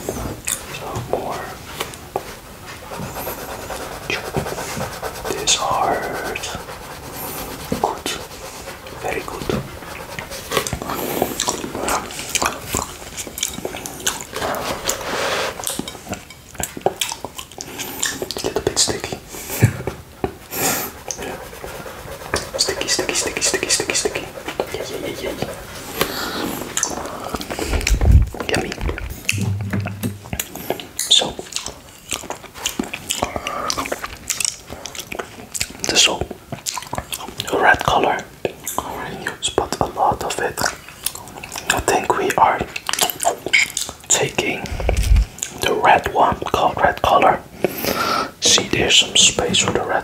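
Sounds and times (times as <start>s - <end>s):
tongue licking: 6.4s - 15.0s, 25.3s - 37.5s
lip smacks: 10.0s - 15.0s, 15.6s - 19.2s, 26.0s - 37.5s, 42.7s - 45.7s
tongue licking wet smacks: 10.6s - 14.3s
brief low hum: 28.9s - 30.4s.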